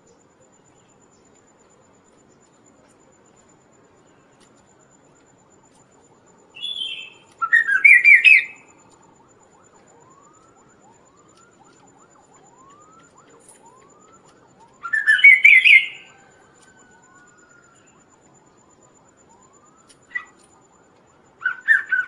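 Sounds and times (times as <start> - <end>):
bird chattering song: 6.6 - 8.6, 14.8 - 16.1, 21.5 - 22.0.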